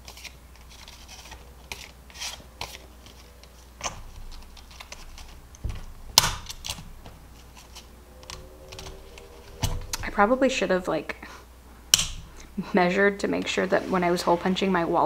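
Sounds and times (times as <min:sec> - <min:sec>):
plastic envelopes rustling: 0:00.0 - 0:07.9.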